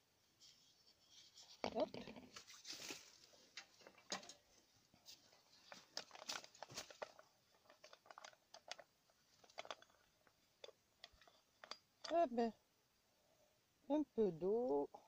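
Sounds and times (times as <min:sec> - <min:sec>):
plastic bottle clicks and crinkles: 0:05.6 - 0:12.2.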